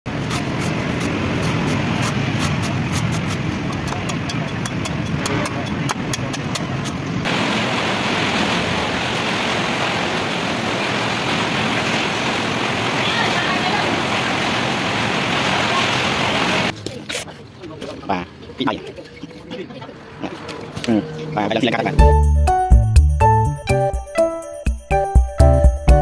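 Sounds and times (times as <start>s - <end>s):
traffic noise: 0.0s - 22.6s
cleaver chopping coconut on wood: 0.2s - 7.0s.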